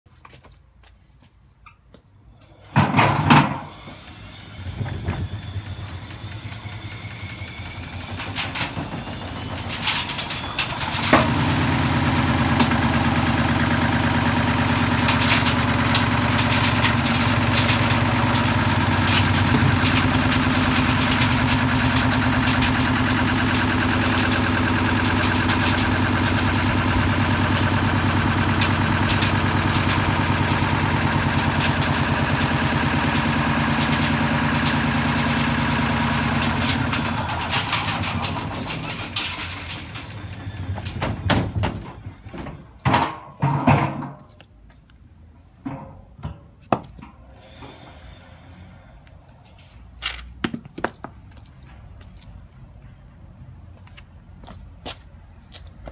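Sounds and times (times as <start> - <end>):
faint rising whines: 47.2 - 49.9.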